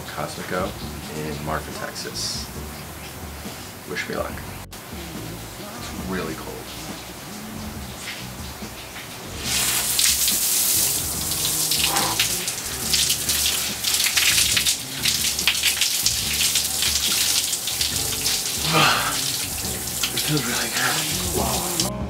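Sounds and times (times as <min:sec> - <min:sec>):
shower water spraying: 0:04.8 - 0:22.0.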